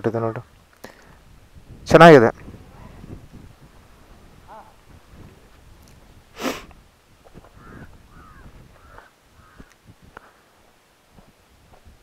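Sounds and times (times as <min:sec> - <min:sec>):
footsteps on dry dirt: 0:07.2 - 0:12.0
bird calling: 0:07.4 - 0:09.8.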